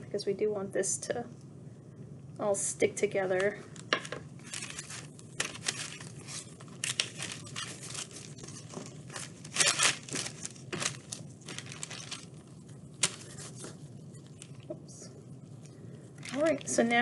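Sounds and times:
paper crinkling and rustling: 4.0 - 14.7, 16.2 - 17.0.

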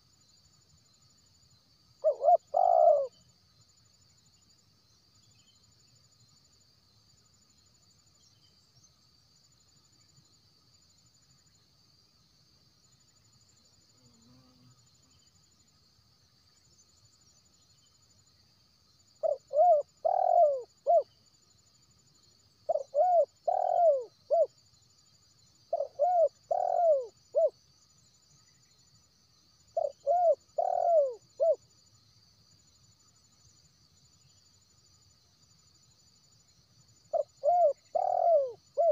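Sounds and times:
dove cooing: 2.0 - 3.2, 19.2 - 21.1, 22.7 - 24.5, 25.7 - 27.5, 29.8 - 31.6, 37.1 - 38.9.

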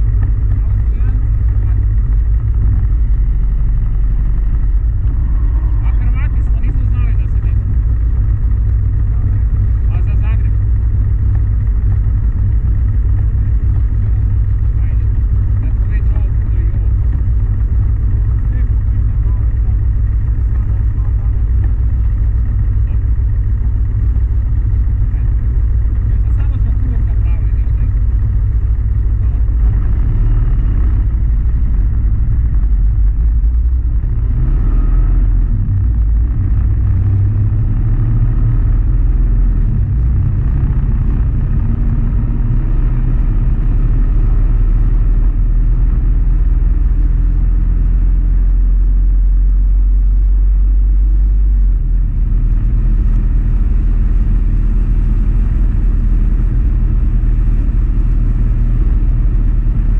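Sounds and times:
motorcycle engine drone: 0.0 - 59.9
wind and road noise: 0.0 - 59.9.

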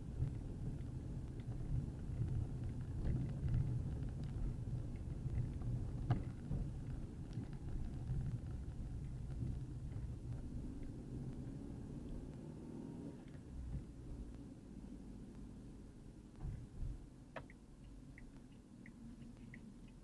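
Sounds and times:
car rumbling over rough asphalt: 0.0 - 20.0
faint clicks: 17.3 - 20.0.

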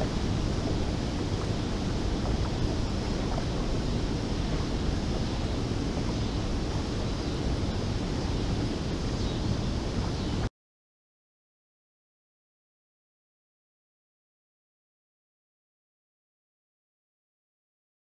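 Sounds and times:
water rushing through spillway: 0.0 - 10.5
wind rumbling on microphone: 0.0 - 10.5.

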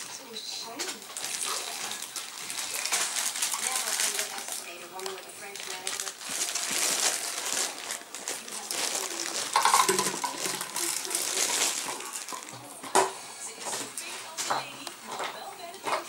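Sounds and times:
plastic bottle crinkling on tiles: 0.0 - 16.0.

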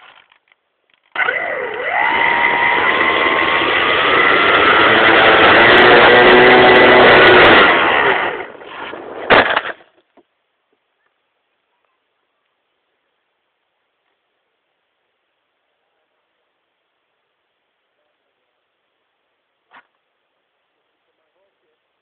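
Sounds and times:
model plane motor whining: 1.1 - 8.6.

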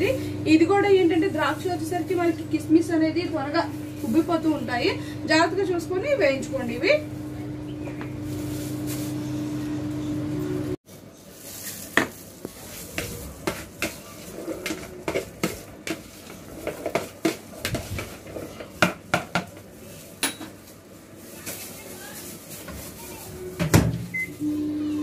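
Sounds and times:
microwave oven humming: 0.0 - 10.8, 21.8 - 25.0.

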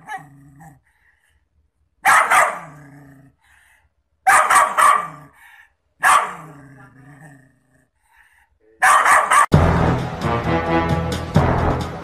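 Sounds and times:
dog barking: 0.0 - 0.3, 2.0 - 3.0, 4.2 - 5.4, 6.0 - 6.6, 8.8 - 9.5
dog growling: 0.0 - 0.9, 2.5 - 3.5, 6.2 - 8.0.

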